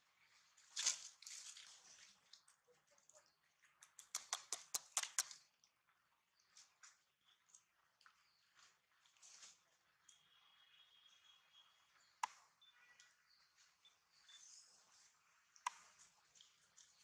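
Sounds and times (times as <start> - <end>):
dry leaves rustling and crackling: 0.6 - 2.5.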